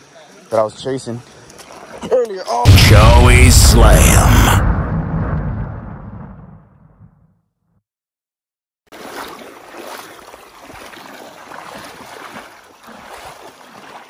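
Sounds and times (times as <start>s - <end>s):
water splashing and sloshing: 1.4s - 2.4s, 8.9s - 14.0s.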